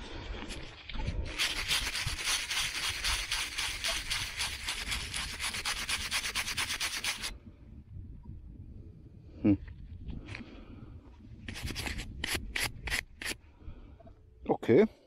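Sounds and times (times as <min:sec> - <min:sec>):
brush scrubbing metal: 0:01.3 - 0:07.3.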